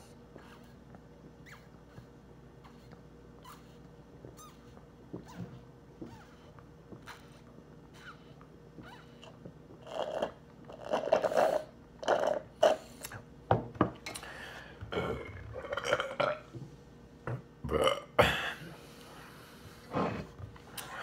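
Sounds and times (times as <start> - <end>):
man burping loudly: 14.9 - 16.4, 17.6 - 18.7.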